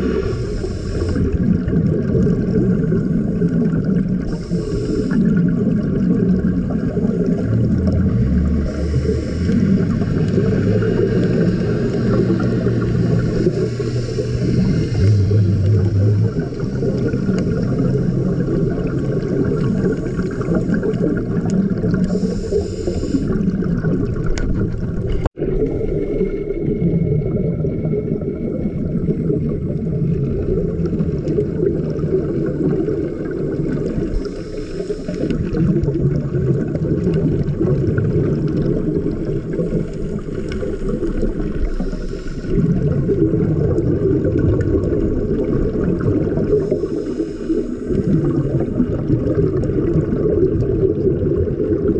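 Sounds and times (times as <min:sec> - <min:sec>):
regulator hiss: 0:00.0 - 0:01.4, 0:04.3 - 0:05.5, 0:08.7 - 0:10.1, 0:11.0 - 0:18.4, 0:22.1 - 0:23.4, 0:34.0 - 0:35.4, 0:41.5 - 0:42.6, 0:46.6 - 0:48.1
underwater regulator breathing rumble: 0:00.0 - 0:26.2, 0:28.1 - 0:50.6.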